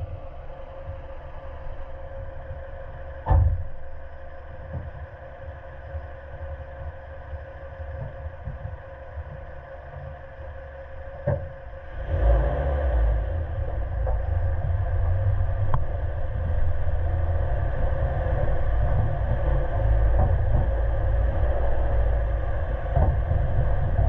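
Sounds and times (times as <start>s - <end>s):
car engine running: 0.0s - 24.0s
vehicle knocks: 3.2s - 3.9s, 11.1s - 11.6s, 13.6s - 24.0s.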